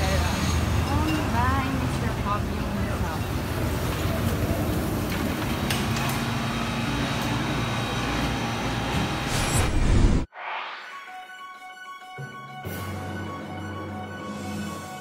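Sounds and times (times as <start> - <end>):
street noise: 0.0 - 9.7.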